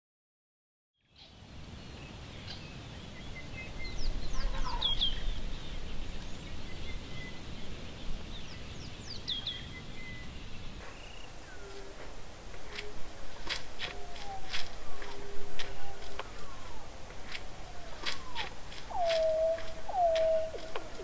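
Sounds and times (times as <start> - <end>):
high falling chirping calls: 18.2 - 21.0.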